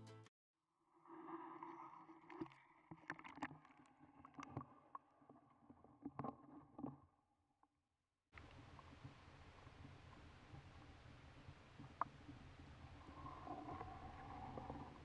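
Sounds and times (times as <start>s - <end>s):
low underwater hum: 8.4s - 15.0s.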